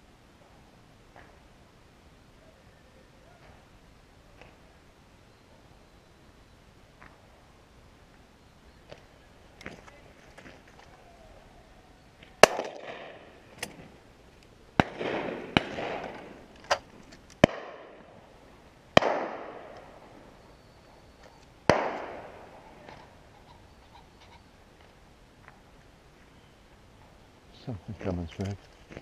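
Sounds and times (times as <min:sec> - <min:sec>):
distant gunshots: 0:12.4 - 0:13.3, 0:14.8 - 0:16.4, 0:17.4 - 0:18.1, 0:19.0 - 0:19.8, 0:21.7 - 0:22.6
shotguns firing: 0:12.4 - 0:13.8, 0:14.8 - 0:16.8, 0:17.4 - 0:18.1, 0:19.0 - 0:20.0, 0:21.7 - 0:22.9.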